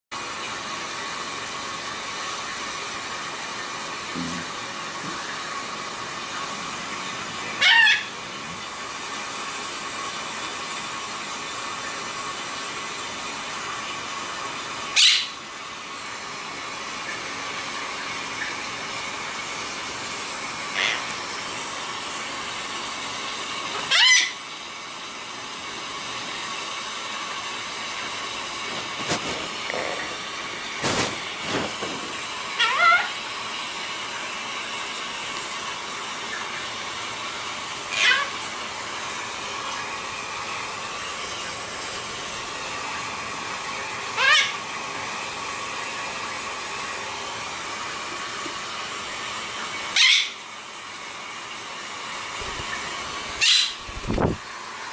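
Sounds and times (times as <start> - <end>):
parakeet squawking: 7.6 - 8.2, 15.0 - 15.4, 20.7 - 21.2, 23.9 - 24.4, 32.6 - 33.2, 37.9 - 38.4, 44.2 - 44.6, 50.0 - 50.4, 53.4 - 53.8.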